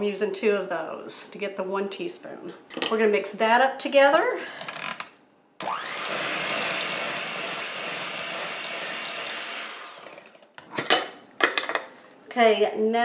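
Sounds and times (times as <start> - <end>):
electric hand mixer whipping: 5.6 - 10.4.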